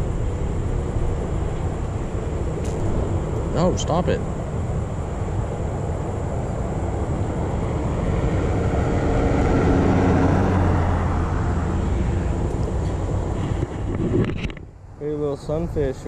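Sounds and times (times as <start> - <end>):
car driving past: 6.9 - 14.0.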